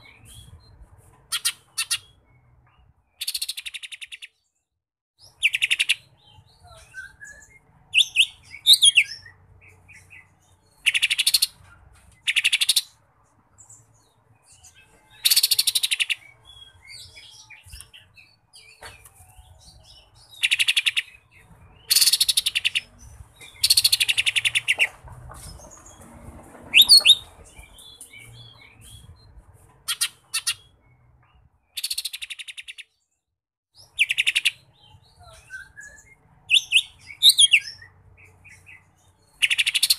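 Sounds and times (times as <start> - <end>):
bird singing harsh rattling trills: 13.6 - 18.7, 20.0 - 24.9, 25.5 - 31.1, 33.8 - 39.9.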